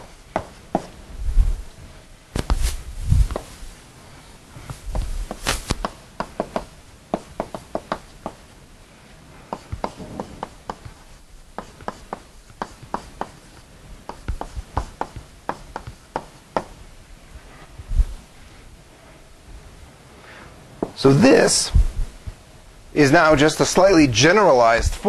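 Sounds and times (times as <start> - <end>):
chalk tapping on blackboard: 0.0 - 1.0, 4.9 - 8.5, 9.5 - 16.8.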